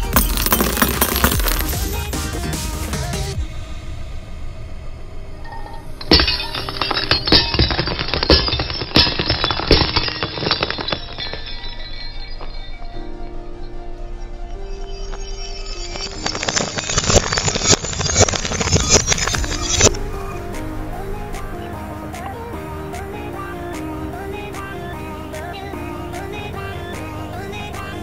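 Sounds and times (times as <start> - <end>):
glass bulbs bursting: 0.0 - 2.0, 5.7 - 13.0, 14.9 - 20.0
glass crunching under tyre: 0.0 - 2.0, 5.9 - 13.0, 14.8 - 20.0
music: 0.0 - 17.5, 18.7 - 28.0.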